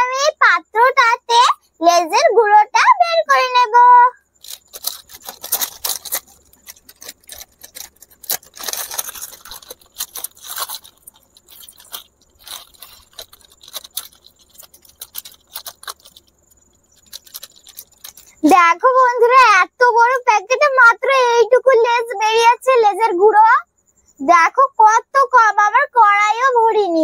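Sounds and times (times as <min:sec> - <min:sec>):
chip packet crinkling: 0:04.4 - 0:18.4.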